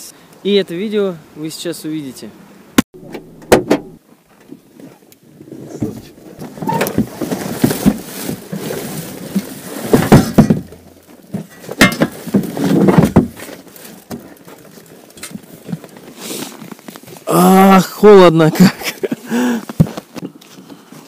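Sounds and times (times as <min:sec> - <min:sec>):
rustling: 0:03.2 - 0:21.0
boxes and bags thumping: 0:09.8 - 0:13.5.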